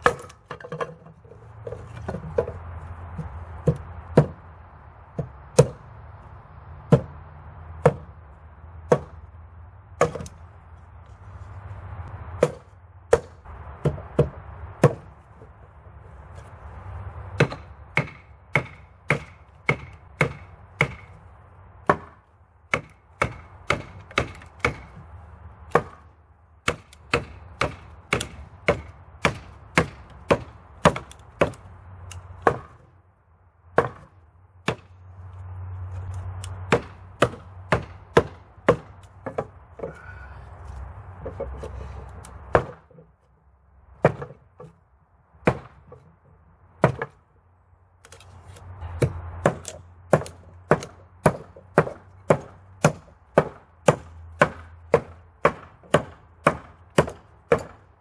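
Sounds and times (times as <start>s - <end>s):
hatchet chopping wood: 0.0s - 4.5s, 5.1s - 5.8s, 6.8s - 7.2s, 7.8s - 8.2s, 8.8s - 9.3s, 10.0s - 10.4s, 12.3s - 15.2s, 17.4s - 21.2s, 21.8s - 32.9s, 33.7s - 35.0s, 36.2s - 40.2s, 41.2s - 43.1s, 43.9s - 44.8s, 45.4s - 46.1s, 46.8s - 47.2s, 48.1s - 57.9s.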